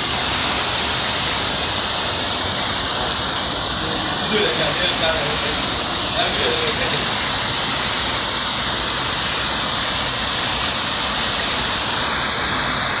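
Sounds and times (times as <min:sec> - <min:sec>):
water rushing over ledge: 0:00.0 - 0:13.0.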